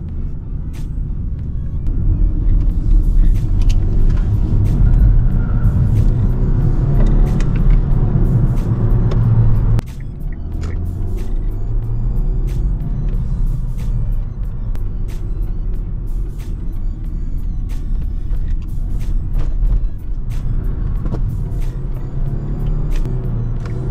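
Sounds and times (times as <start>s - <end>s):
car engine accelerating: 0.0s - 23.9s
road rumble: 0.0s - 23.9s.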